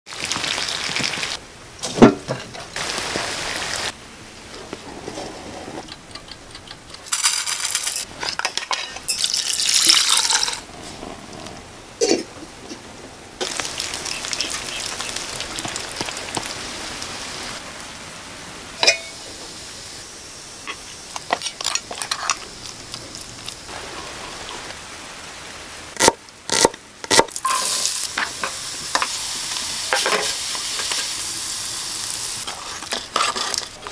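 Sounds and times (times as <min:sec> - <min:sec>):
onion sizzling in a pan: 0:00.1 - 0:01.4, 0:02.8 - 0:04.0, 0:07.0 - 0:11.1, 0:13.4 - 0:18.0, 0:18.6 - 0:33.9
rain dripping from eaves: 0:09.1 - 0:10.7, 0:13.4 - 0:30.1
wooden spatula stirring: 0:32.5 - 0:33.9.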